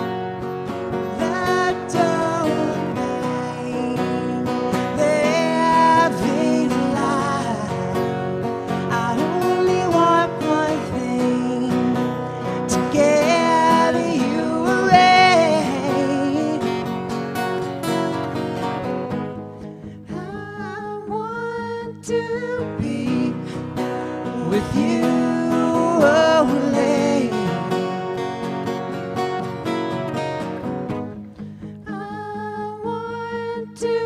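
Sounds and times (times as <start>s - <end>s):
acoustic guitars strummed: 0.0s - 34.0s
man singing: 1.1s - 17.1s, 20.1s - 28.2s.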